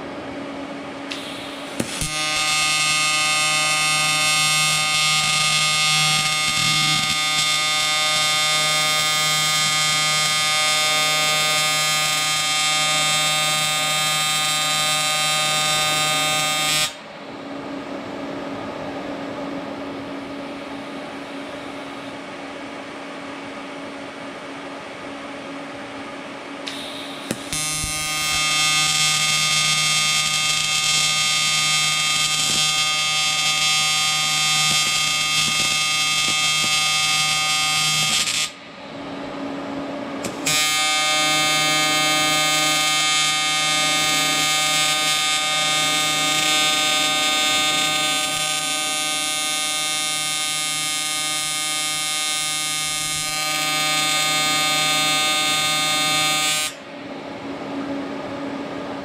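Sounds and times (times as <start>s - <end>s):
welding arc buzzing: 1.1s - 17.0s, 26.6s - 38.7s, 40.2s - 56.8s.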